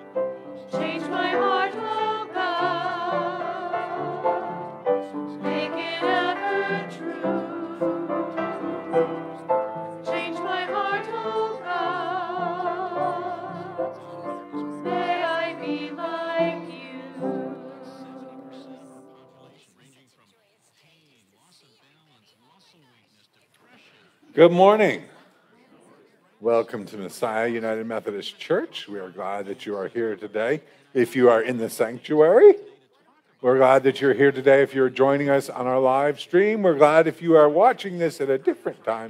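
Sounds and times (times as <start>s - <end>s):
choir singing: 0.0s - 19.6s.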